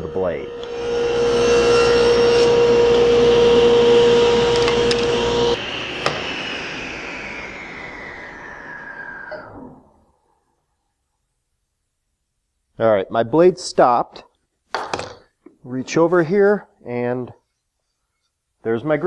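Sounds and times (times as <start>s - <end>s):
saw blade winding down whine: 0.0s - 10.6s
table saw ripping board: 4.0s - 6.2s.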